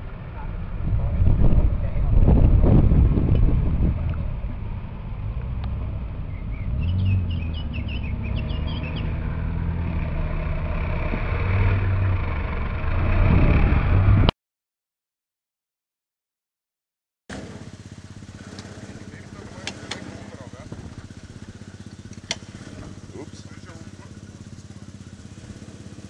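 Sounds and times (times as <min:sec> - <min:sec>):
car engine running at low revs: 0:00.0 - 0:14.3, 0:17.3 - 0:26.0
bird chirping: 0:06.2 - 0:09.4, 0:21.6 - 0:24.7.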